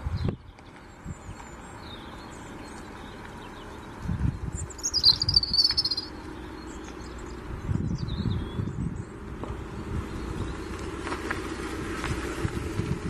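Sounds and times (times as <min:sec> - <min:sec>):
songbird trill: 0:00.0 - 0:11.2
faint high chirps: 0:04.6 - 0:06.1.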